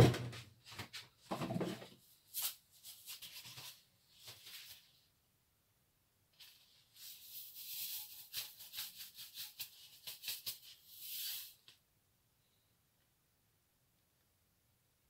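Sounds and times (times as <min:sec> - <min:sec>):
salt shaken from a shaker: 0:02.3 - 0:04.8, 0:06.4 - 0:11.7.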